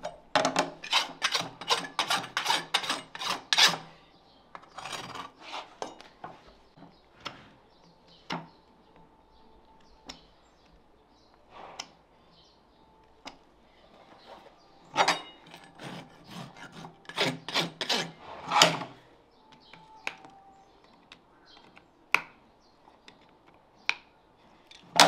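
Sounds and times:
rasp filing hoof: 0:00.6 - 0:04.0, 0:14.9 - 0:19.0.

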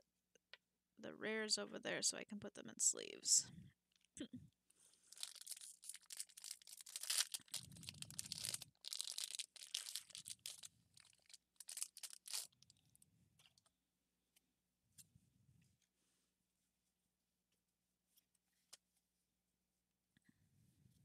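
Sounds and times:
foil wrapper crinkling and tearing: 0:05.1 - 0:13.6.

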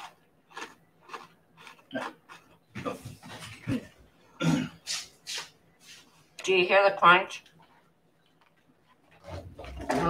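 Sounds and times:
biscuit crunching and chewing: 0:00.0 - 0:03.0, 0:07.4 - 0:10.0.

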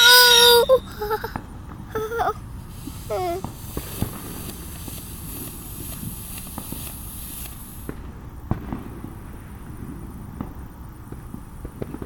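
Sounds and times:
firework hissing: 0:00.0 - 0:10.1
crackling pops: 0:02.7 - 0:09.3.

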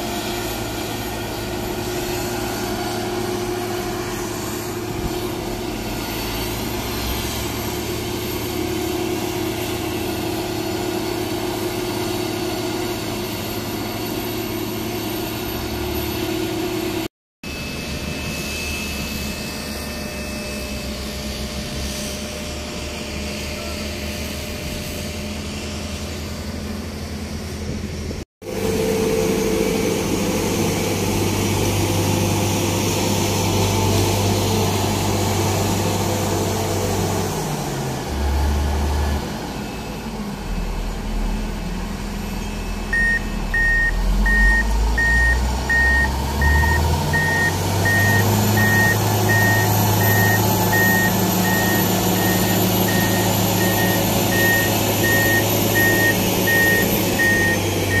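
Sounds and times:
heavy diesel engine running: 0:00.0 - 0:58.0
reversing alarm beeping: 0:42.1 - 0:58.0.

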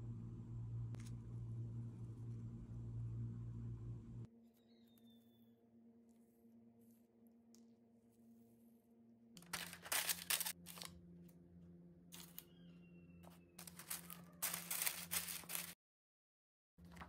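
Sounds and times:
faint steady hum: 0:00.0 - 0:04.3
paper rustling and crinkling: 0:09.4 - 0:10.9, 0:12.2 - 0:12.5, 0:13.6 - 0:15.8.

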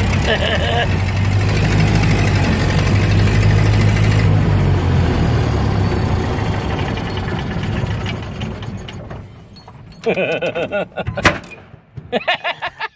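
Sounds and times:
car engine running: 0:00.0 - 0:09.3.

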